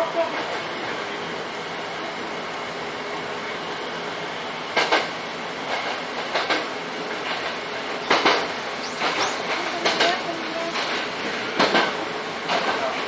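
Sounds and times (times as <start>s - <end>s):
train wheels rumbling on rail: 0.0s - 13.0s
wheels clicking over rail joints: 4.7s - 13.0s.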